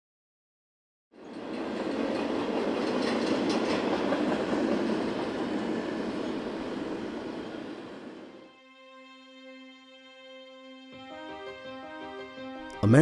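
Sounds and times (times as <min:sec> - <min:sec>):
train wheels rumbling on track: 0:01.2 - 0:08.4
sharp clicks of rails: 0:01.9 - 0:04.9.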